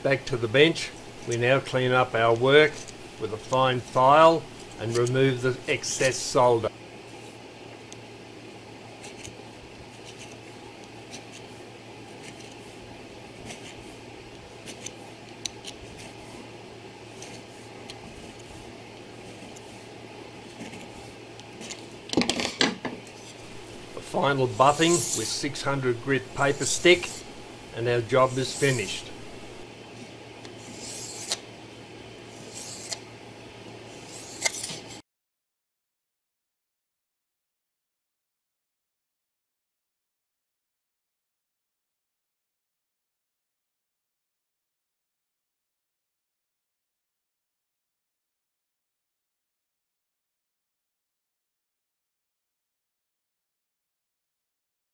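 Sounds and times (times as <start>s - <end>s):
steady low hum: 0.0s - 35.0s
file scraping metal: 23.2s - 29.6s, 30.6s - 31.4s, 32.4s - 33.0s, 34.0s - 35.0s.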